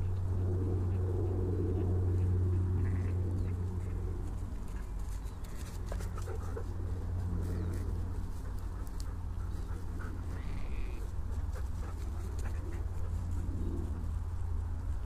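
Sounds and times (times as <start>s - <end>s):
low outdoor rumble: 0.0s - 15.0s
sheep calling: 2.8s - 3.2s.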